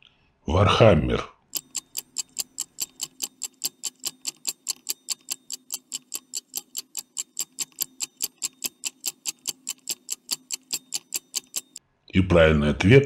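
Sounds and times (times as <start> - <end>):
stopwatch ticking: 1.5 - 11.8.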